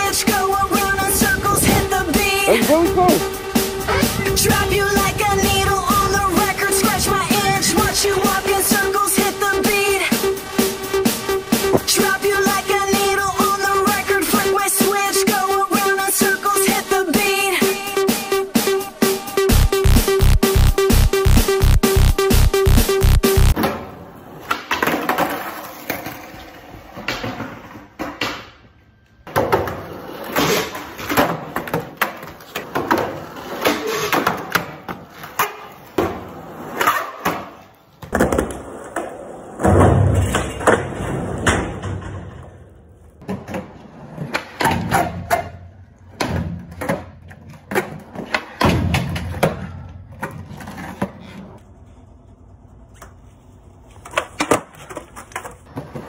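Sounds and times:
skateboard wheels rolling on concrete: 0.0 - 56.0
skateboard pops and clacks: 53.9 - 56.0.

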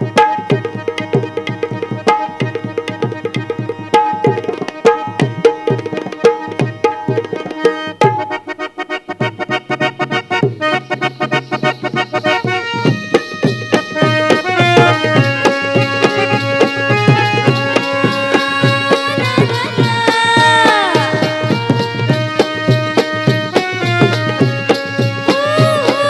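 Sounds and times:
barrel drum quick rhythm: 0.0 - 8.5, 9.2 - 26.0
sustained melody line: 7.0 - 26.0.

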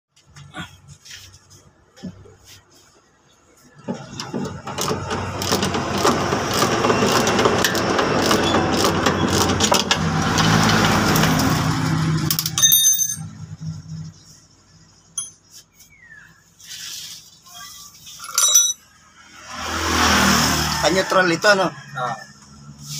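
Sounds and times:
short metallic ring: 12.5 - 13.4, 15.2 - 15.5, 18.2 - 18.9
handling of metal shaft: 18.2 - 18.8.

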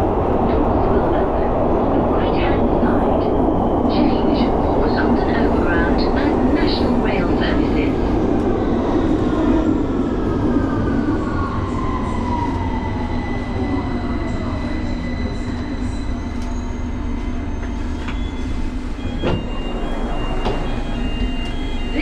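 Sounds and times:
train car rumble: 0.0 - 22.0.

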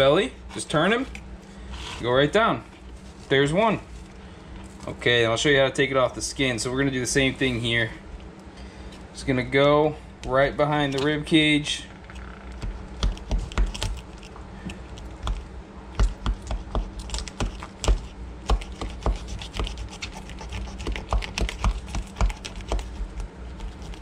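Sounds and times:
knife clicking and scraping fish: 16.0 - 24.0.

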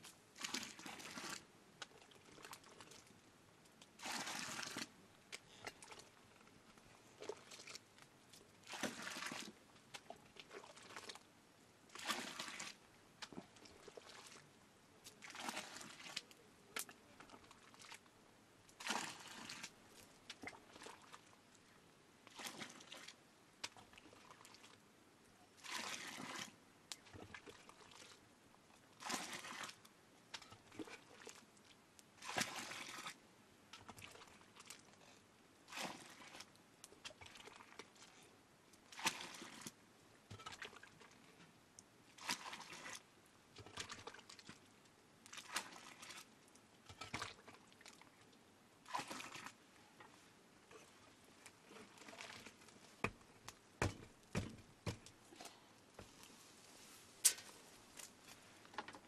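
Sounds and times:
liquid splashing from ladle: 40.3 - 40.9, 45.3 - 48.0, 48.8 - 49.6.

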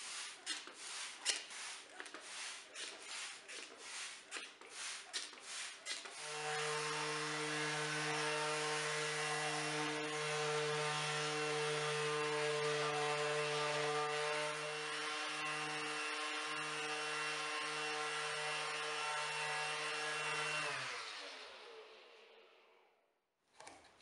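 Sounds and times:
uneven rubbing strokes: 0.0 - 6.8
orbit sander sanding wood: 0.0 - 21.2.

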